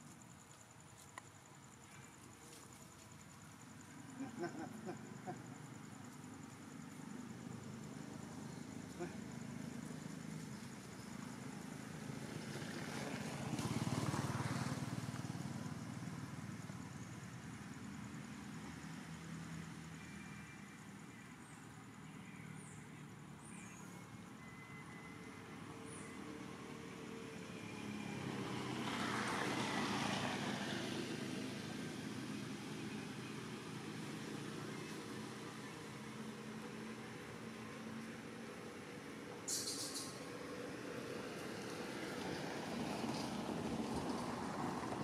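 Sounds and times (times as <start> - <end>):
vehicle engine passing by: 7.1 - 19.9, 25.6 - 45.0.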